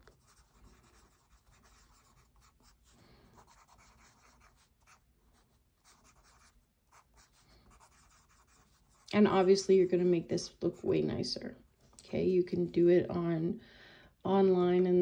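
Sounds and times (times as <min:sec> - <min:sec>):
pen scratching on paper: 0:00.0 - 0:10.0.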